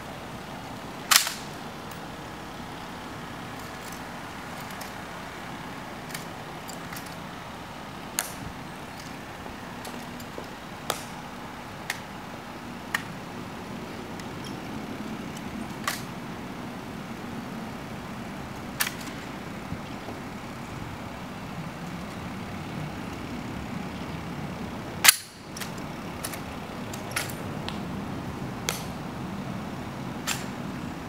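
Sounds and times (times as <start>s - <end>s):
steady vehicle hum: 0.0s - 31.0s
rifle clicks and slaps: 1.1s - 1.6s, 8.2s - 8.4s, 10.9s - 11.2s, 15.8s - 16.1s, 18.8s - 19.2s, 25.0s - 27.8s, 28.7s - 28.9s, 30.3s - 30.5s.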